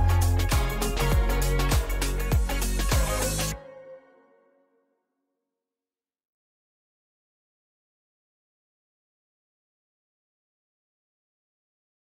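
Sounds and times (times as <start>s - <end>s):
music with steady beat: 0.0s - 3.8s.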